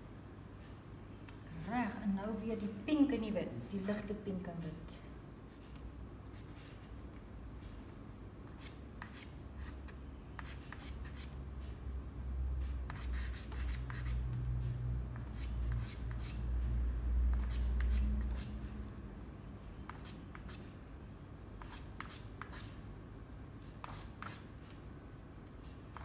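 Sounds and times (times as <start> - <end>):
pastel stick scratching on paper: 8.5 - 11.4, 12.9 - 14.2, 17.3 - 18.5, 23.8 - 24.5.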